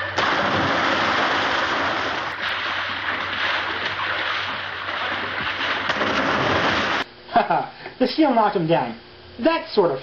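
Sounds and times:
water rushing against rocks: 0.2s - 7.1s.

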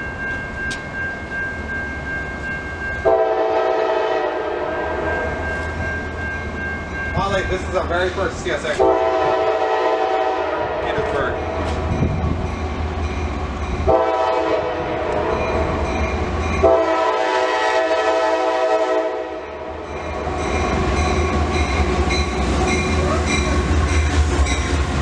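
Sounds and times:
locomotive rumbling: 0.0s - 25.0s
locomotive horn blasts: 3.0s - 5.1s, 8.7s - 11.1s, 13.9s - 15.4s, 16.6s - 19.7s.

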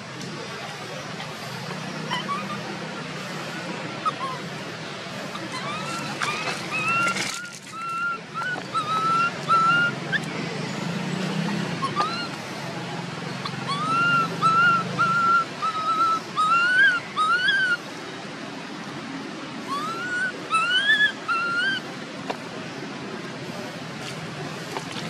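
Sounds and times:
baby monkey crying: 2.1s - 2.7s, 5.3s - 10.3s, 13.4s - 17.8s, 19.7s - 21.8s.

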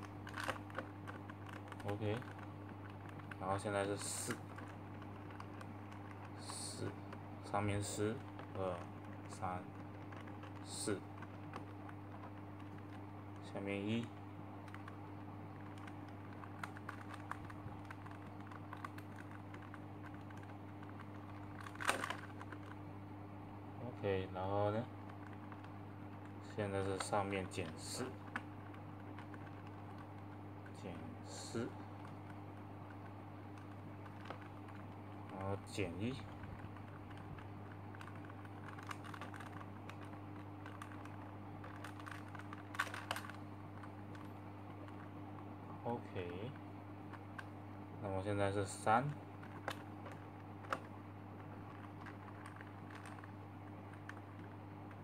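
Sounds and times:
plastic puzzle clicks and rattles: 0.0s - 15.0s, 15.6s - 22.8s, 26.6s - 45.1s, 48.6s - 55.0s
low electrical hum: 0.0s - 55.0s
plastic puzzle clicking: 36.4s - 45.1s.

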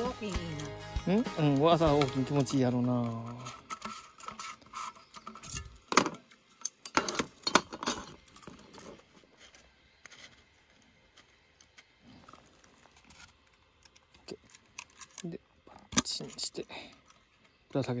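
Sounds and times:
metal case clinking and rattling: 1.4s - 9.2s.

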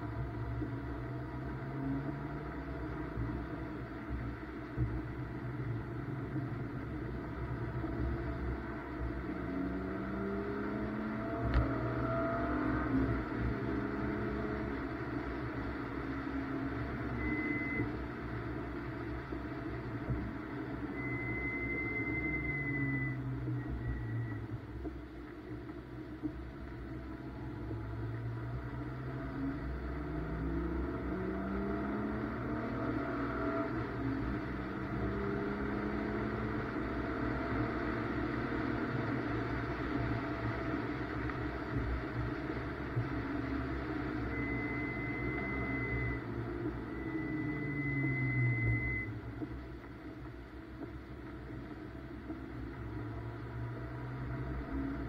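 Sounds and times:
car engine revving from inside cabin: 0.0s - 50.2s, 52.2s - 55.0s
high electronic beep: 16.9s - 17.9s, 20.9s - 24.4s, 44.2s - 49.2s.

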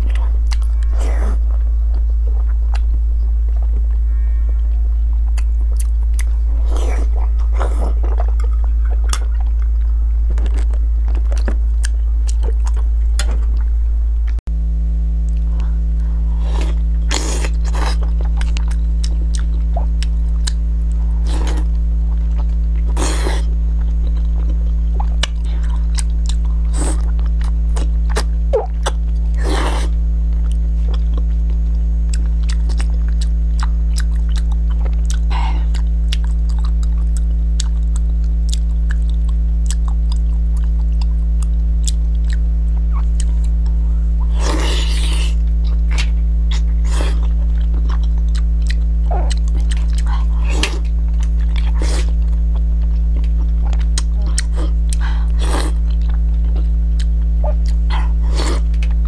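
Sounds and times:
chewing and crunching food: 0.0s - 4.0s, 4.7s - 14.4s, 15.2s - 59.0s
loud low hum: 0.0s - 59.0s
low drone of held tones: 0.0s - 59.0s.

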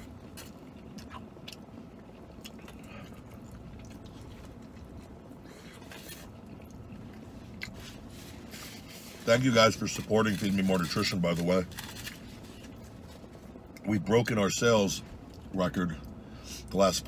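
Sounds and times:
man chewing food: 0.0s - 9.2s
low background rumble: 0.0s - 17.0s.

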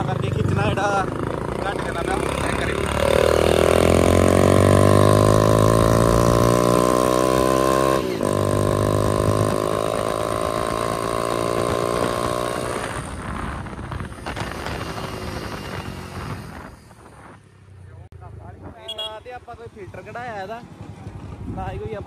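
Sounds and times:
motorcycle engine running: 0.0s - 16.9s.

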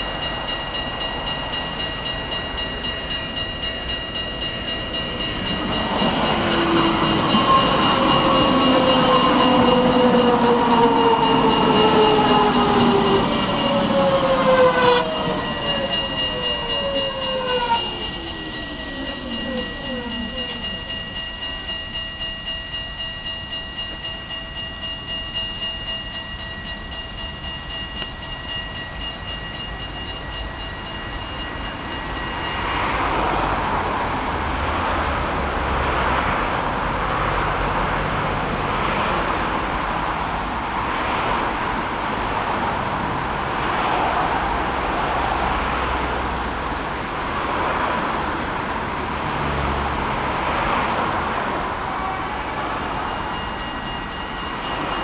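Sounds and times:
traffic rumble: 0.0s - 21.6s
tram motors whining: 0.0s - 22.0s.

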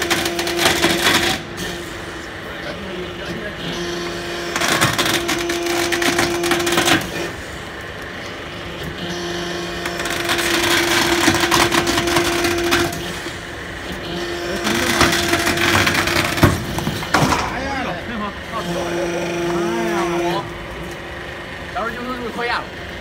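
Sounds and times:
hydraulic pump whining: 0.0s - 23.0s.

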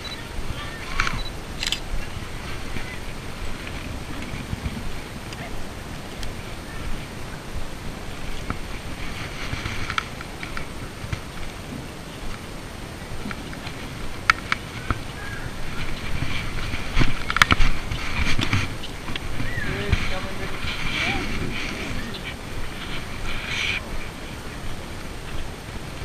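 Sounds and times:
wind rumbling on microphone: 0.0s - 26.0s
sharp camera clicks: 0.9s - 2.0s
camera handling rustling: 1.0s - 1.9s.

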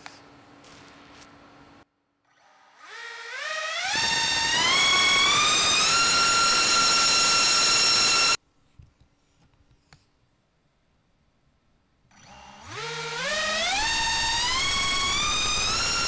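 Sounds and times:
electric motor high whine: 2.3s - 8.4s, 12.2s - 16.0s.

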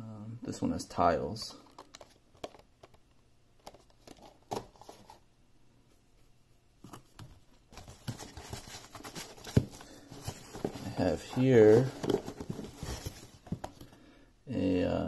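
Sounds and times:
packaging taps and clicks: 1.6s - 3.0s
rustling in cardboard box: 6.9s - 14.0s.

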